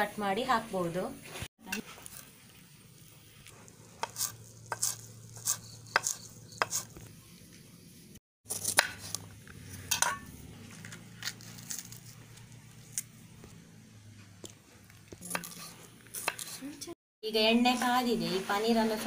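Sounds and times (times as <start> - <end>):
knife scraping: 3.4 - 7.1, 8.5 - 13.1, 15.2 - 16.9
knife chopping on wooden board: 4.0 - 7.0, 8.5 - 9.2, 15.2 - 16.6.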